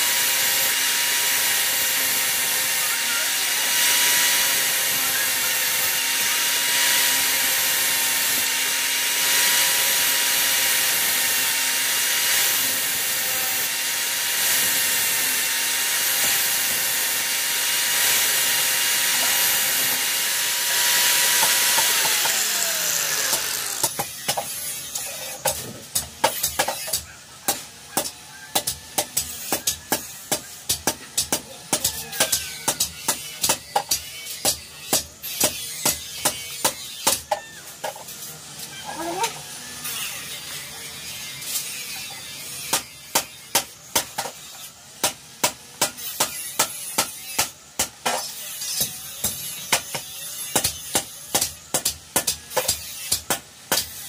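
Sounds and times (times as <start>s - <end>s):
grinder disc spinning down: 0.0s - 24.0s
angle grinder grinding steel: 0.0s - 54.0s.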